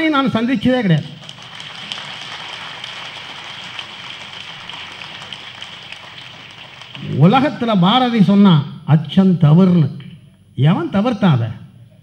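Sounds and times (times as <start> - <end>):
audience applauding: 1.0 - 7.5.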